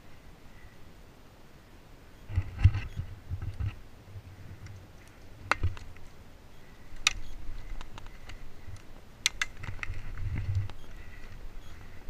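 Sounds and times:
sharp clicks and snaps: 7.0s - 10.8s.

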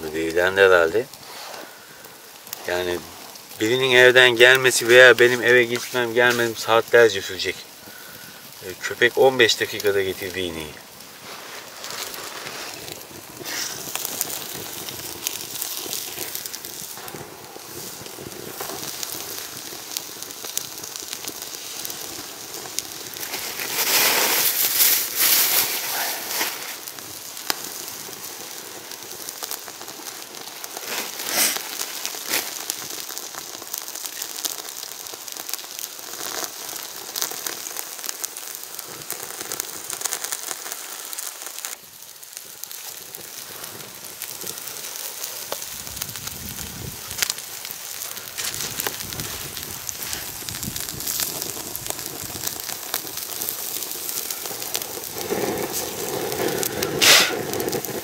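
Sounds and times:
wood fire crackling and hissing: 0.0s - 58.0s
sharp fire pop: 11.0s - 22.0s, 22.7s - 35.6s, 45.4s - 58.0s.

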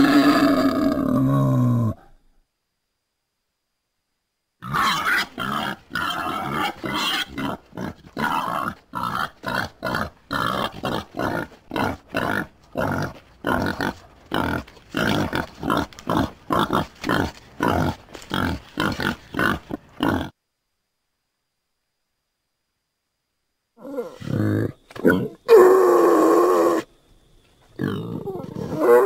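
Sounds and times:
wild boar grunting: 4.6s - 20.4s, 27.8s - 29.0s.

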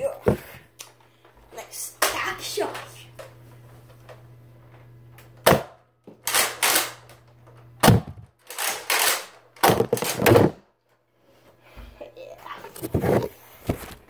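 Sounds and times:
foam dart blaster shots: 7.8s - 8.2s.

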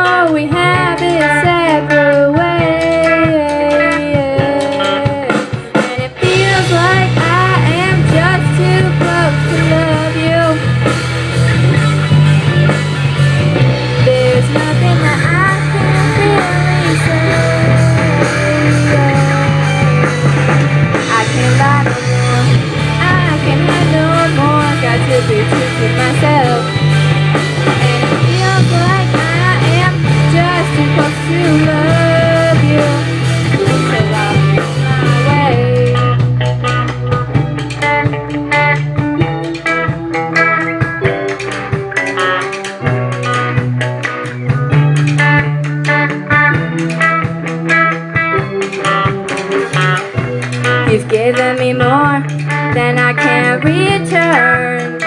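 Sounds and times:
girl singing lead vocal: 0.0s - 10.9s, 13.9s - 20.1s, 20.9s - 26.8s, 27.7s - 36.8s, 50.8s - 55.0s
electric guitars: 0.0s - 55.0s
rock band playing: 0.0s - 55.0s.

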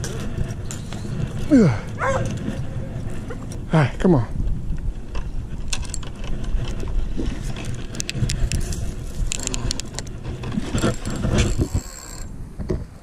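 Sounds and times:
camera clicks and scrapes: 0.0s - 3.6s, 5.1s - 13.0s
steady low rumble: 0.0s - 11.3s.

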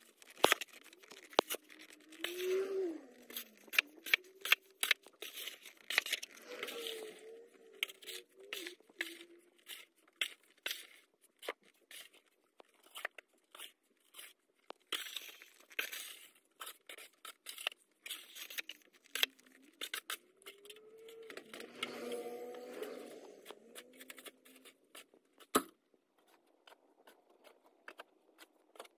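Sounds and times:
plastic shovel scraping snow: 0.4s - 10.9s, 20.9s - 25.1s.

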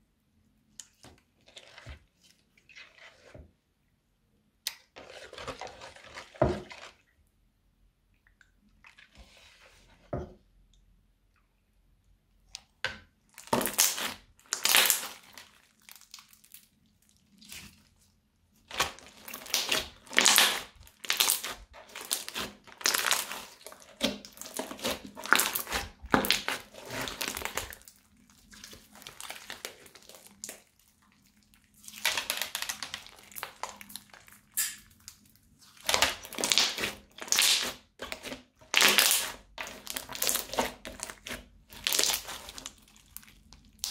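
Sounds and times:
crunchy slime crackling and popping: 13.4s - 17.8s, 18.6s - 43.9s.

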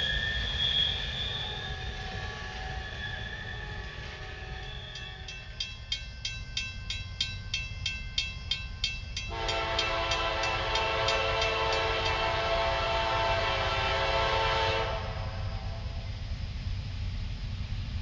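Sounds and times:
locomotive air horn blast: 3.5s - 4.8s, 9.3s - 16.0s
crossing bell ringing: 4.2s - 12.6s.

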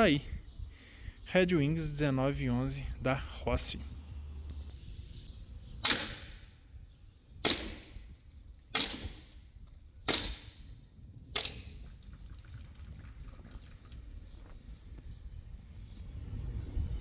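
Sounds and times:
airsoft pistol shots: 5.8s - 6.5s, 7.4s - 8.1s, 8.7s - 9.4s, 10.1s - 10.7s, 11.4s - 11.8s.

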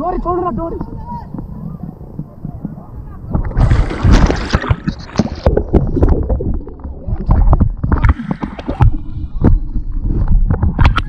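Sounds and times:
river water splashing: 3.5s - 8.9s.

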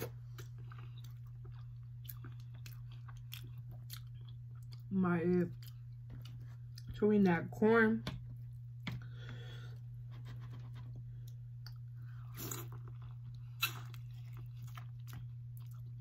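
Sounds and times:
person chewing and crunching: 0.0s - 7.0s, 10.2s - 16.0s.

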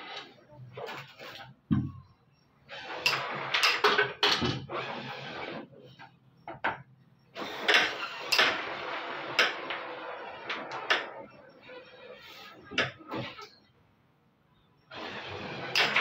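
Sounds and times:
striker clacking against coins: 15.6s - 16.0s.

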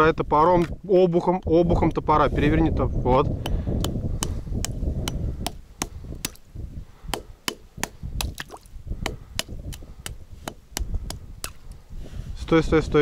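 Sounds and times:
hatchet chipping ice: 3.8s - 6.4s, 7.1s - 11.6s.

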